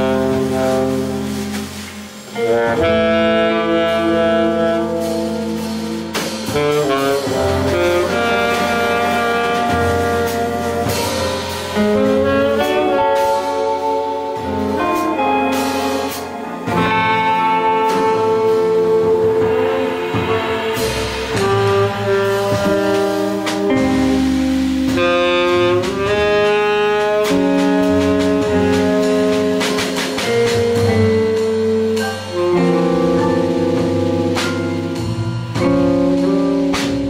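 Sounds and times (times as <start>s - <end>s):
jazz band playing: 0.0s - 37.0s
saxophone melody: 0.0s - 37.0s.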